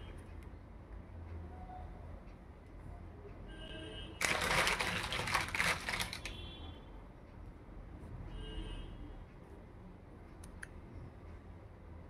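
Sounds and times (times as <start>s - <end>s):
crackling handling noise: 4.2s - 6.4s.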